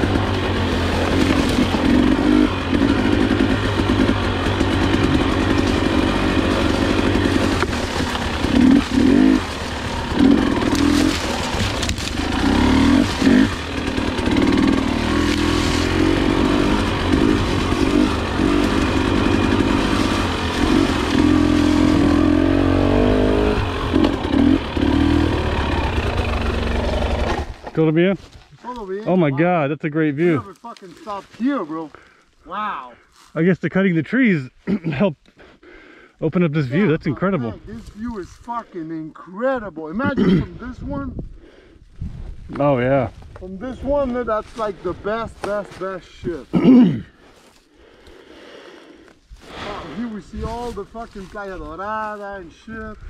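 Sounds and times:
dirt bike engine revving: 0.0s - 27.7s.

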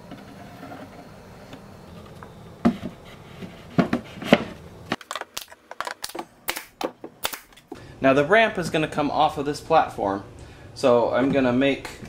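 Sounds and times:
pneumatic nailer firing: 6.5s - 7.6s.

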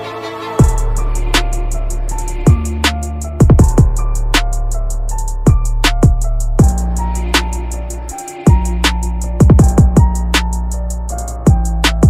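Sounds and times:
bass and keyboard notes: 0.6s - 12.0s
hi-hat ticks: 0.6s - 12.0s
kick drum: 3.4s - 4.0s, 9.4s - 10.2s.

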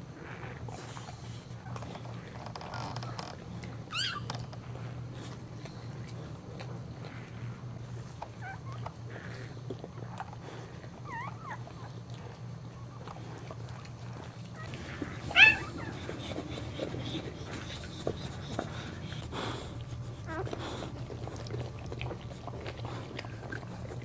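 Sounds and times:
steady low hum: 0.0s - 24.0s
puppy squeaking: 3.9s - 4.4s, 14.6s - 17.0s.

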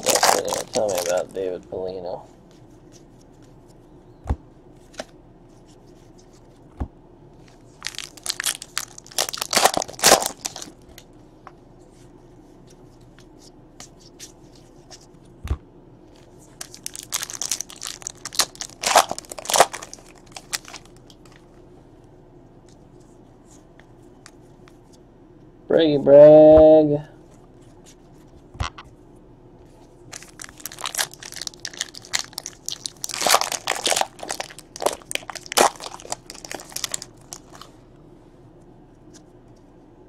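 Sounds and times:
card wrappers crinkling: 0.0s - 1.5s, 7.7s - 10.8s, 16.5s - 21.4s, 30.1s - 37.7s.

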